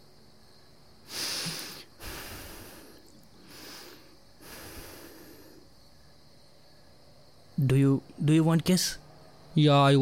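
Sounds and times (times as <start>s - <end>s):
man breathing heavily: 1.0s - 6.0s.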